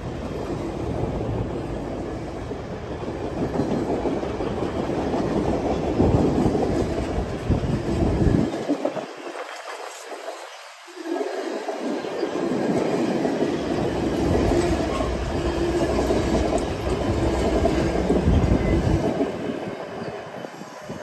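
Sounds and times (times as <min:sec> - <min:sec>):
train wheels rumbling and clicking: 0:00.0 - 0:10.6, 0:11.6 - 0:20.3.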